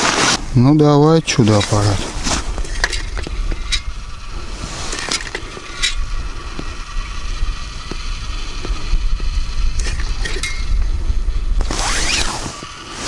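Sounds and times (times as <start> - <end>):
wind buffeting microphone: 0.4 - 13.0.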